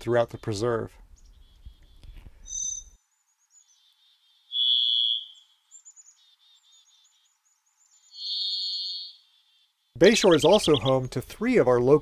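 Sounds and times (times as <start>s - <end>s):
faint high twittering: 0.2s - 11.2s
thrush whistling song: 1.2s - 9.3s, 10.0s - 11.2s.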